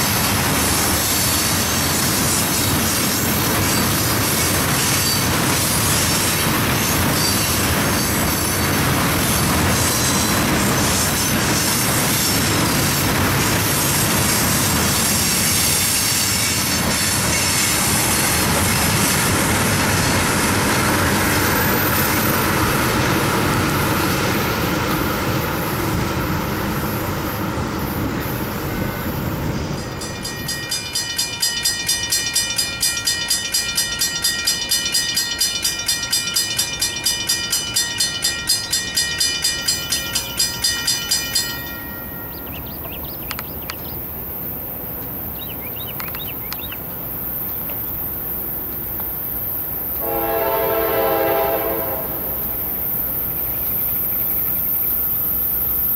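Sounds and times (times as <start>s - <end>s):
freight train wheels rattling: 0.0s - 55.9s
crossing bell ringing: 29.5s - 43.0s.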